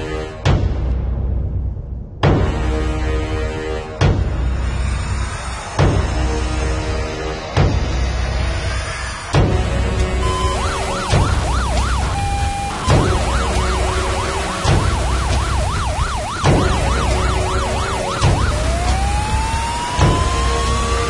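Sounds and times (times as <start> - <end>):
background music with beat: 2.2 - 21.0
fire engine siren: 10.1 - 21.0.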